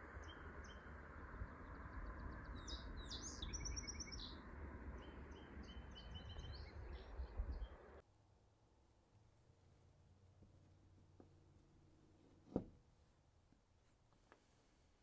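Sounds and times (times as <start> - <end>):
songbirds chirping: 0.0 - 8.0
wind rumble on microphone: 0.0 - 8.0.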